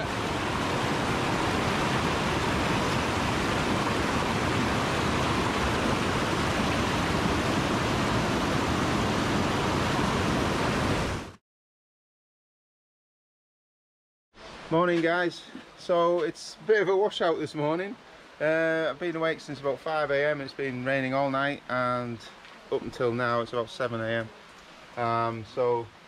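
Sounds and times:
stream rushing over rocks: 0.0 - 11.4.

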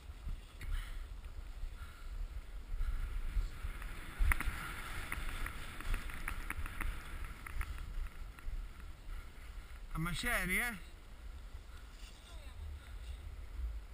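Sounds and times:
wind rumbling on microphone: 0.0 - 13.9
skis scraping over snow: 2.9 - 10.8.

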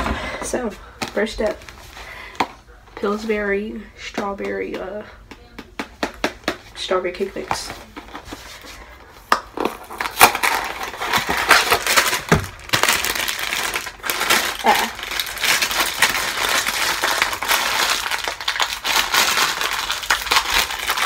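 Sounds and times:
plastic bag crinkling: 9.5 - 21.0
cardboard box tearing: 9.6 - 21.0.

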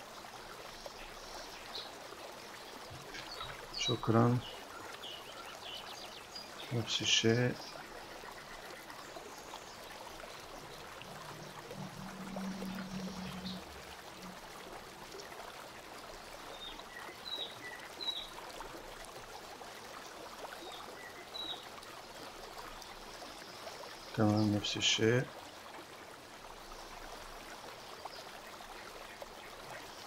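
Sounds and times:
low hum: 10.8 - 14.9.

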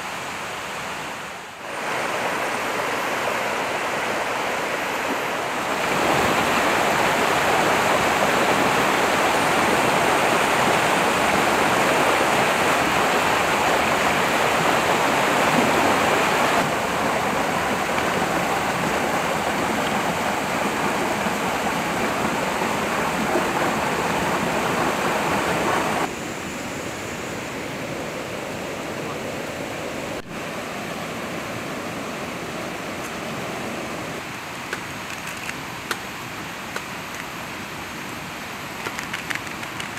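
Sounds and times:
river rushing over rocks: 0.0 - 26.2.

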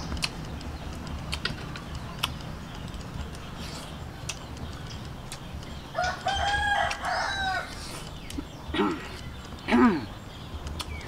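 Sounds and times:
eating: 0.0 - 11.0
rooster crowing: 6.0 - 7.8.

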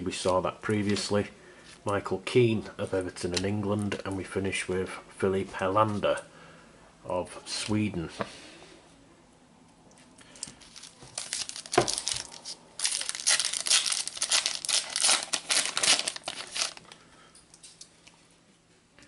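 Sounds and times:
card packet crinkling: 10.3 - 17.0.

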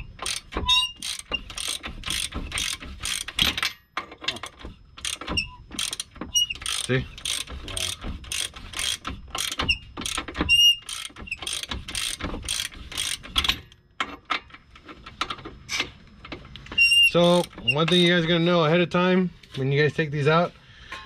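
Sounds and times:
short high squeaks: 0.0 - 1.8, 5.3 - 13.2, 16.7 - 18.2
ratchet wrench clicking: 0.1 - 3.6, 5.0 - 13.6, 17.1 - 18.1.

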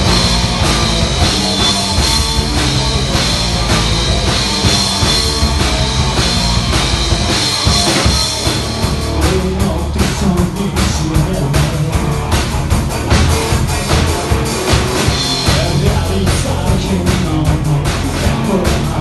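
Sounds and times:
electric guitar playing: 0.0 - 16.7
bass guitar: 0.0 - 19.0
drum kit steady beat: 0.0 - 19.0.

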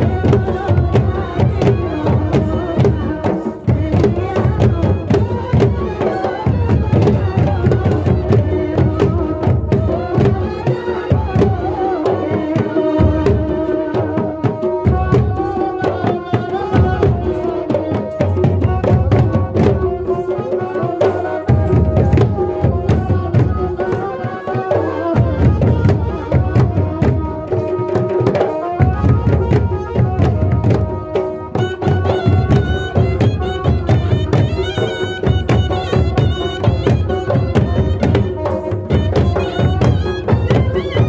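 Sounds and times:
hand drum strokes: 0.0 - 41.0.

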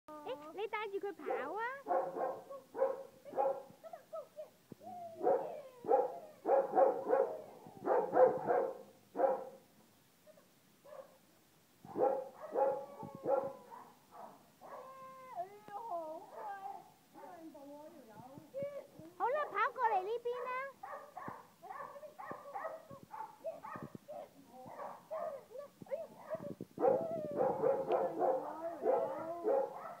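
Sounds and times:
puppy barking: 1.3 - 3.8, 5.2 - 9.6, 10.3 - 11.2, 11.9 - 14.9, 20.3 - 30.0
puppy yipping and whining: 26.0 - 30.0.

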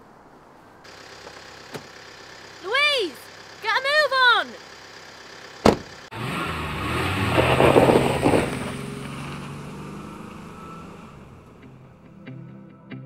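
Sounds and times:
sharp thump: 5.6 - 5.9
car engine speeding up: 6.1 - 12.2.

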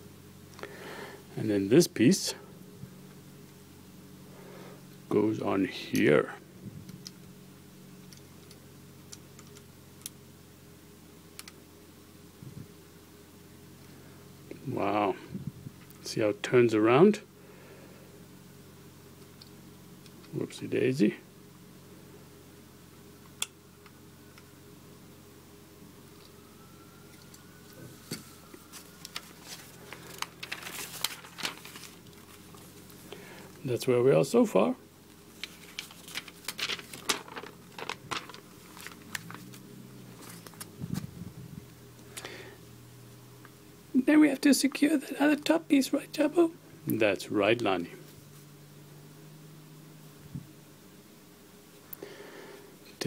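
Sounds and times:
faint low hum: 0.0 - 53.0
paper booklet rustling: 28.2 - 33.0, 35.4 - 41.1.

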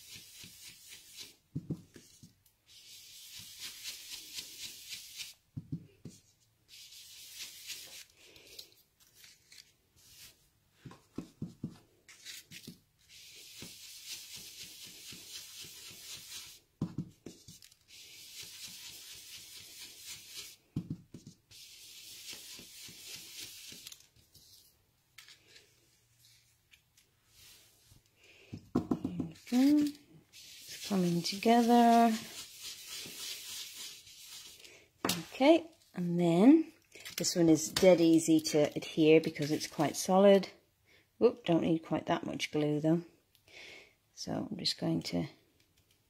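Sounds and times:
brush rubbing on cardstock: 0.0 - 5.4, 6.0 - 8.1, 13.0 - 16.6, 17.2 - 24.0, 29.4 - 34.6.

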